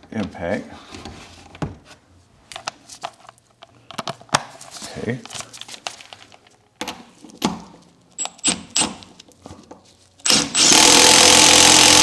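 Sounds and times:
impact driver running: 10.2 - 12.0.

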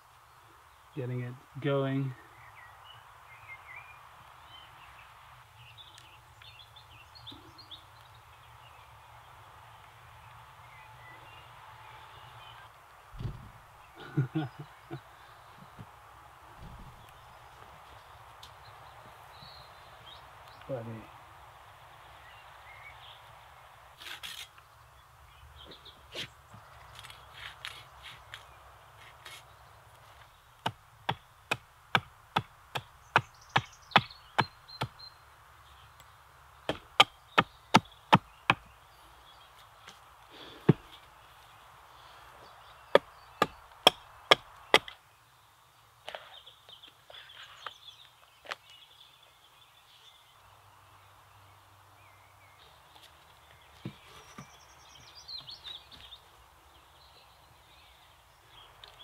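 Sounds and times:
faint birdsong: 0.0 - 59.0
light knocks: 13.2 - 13.6
hand axe chopping branch: 43.0 - 45.0.

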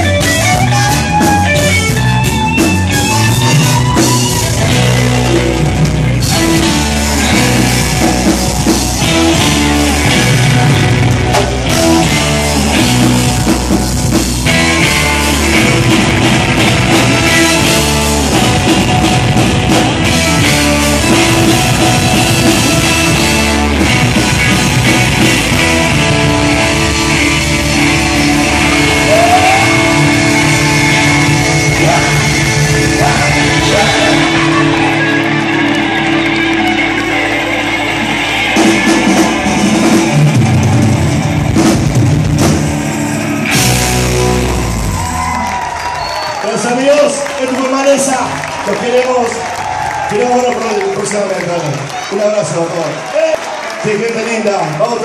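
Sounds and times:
live rock band playing loudly: 0.0 - 55.0.

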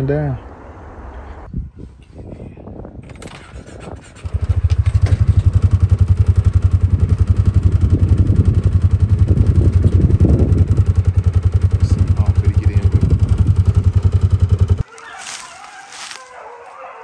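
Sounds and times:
vehicle engine starting and idling: 3.0 - 14.8.

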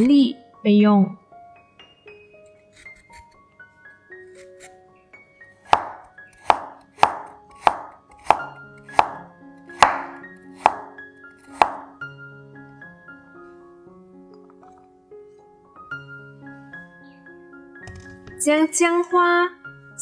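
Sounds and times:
soft background music: 0.0 - 20.0
knife slicing on wooden board: 2.6 - 3.4, 4.3 - 4.8, 5.7 - 12.0.

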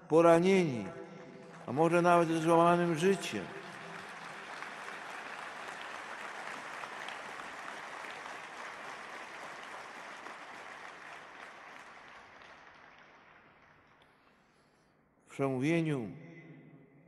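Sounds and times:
audience applauding: 1.4 - 14.2.

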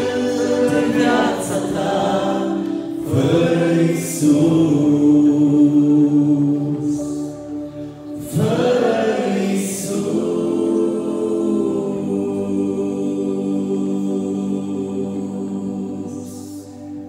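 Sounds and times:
men singing in close harmony: 0.0 - 7.0.

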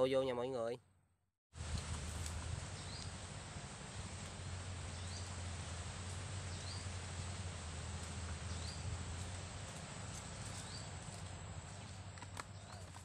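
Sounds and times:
bird chirping: 2.7 - 3.2, 4.8 - 5.4, 6.4 - 7.3, 8.1 - 9.3, 10.1 - 13.0.

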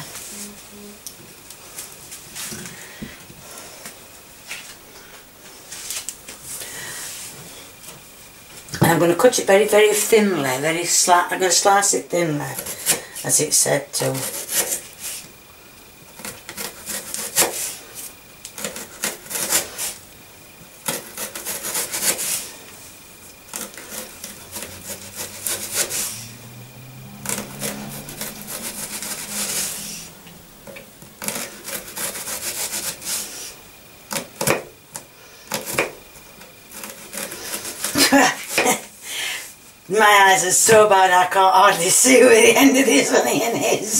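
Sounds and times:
knife slicing onion: 12.4 - 13.0, 14.1 - 15.2, 16.1 - 17.8, 18.6 - 20.0, 20.8 - 22.6, 23.4 - 26.2, 27.2 - 30.1, 31.2 - 36.0, 36.7 - 38.8.

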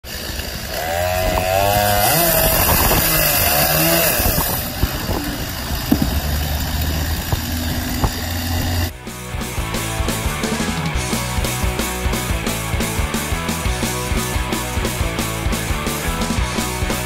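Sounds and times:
chainsaw cutting into log: 0.0 - 8.9
wood block falling with knocks: 4.8 - 8.8.

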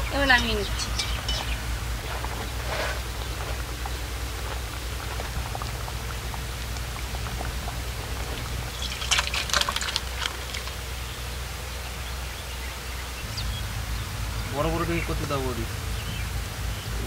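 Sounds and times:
low hum: 0.0 - 17.0
curry sloshing into bowl: 5.4 - 10.9.

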